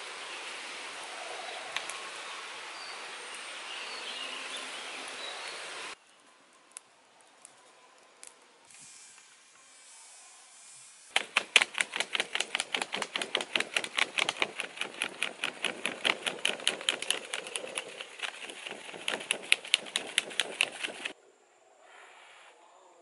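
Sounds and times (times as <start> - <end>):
dry leaf flapping: 11.1 - 21.2.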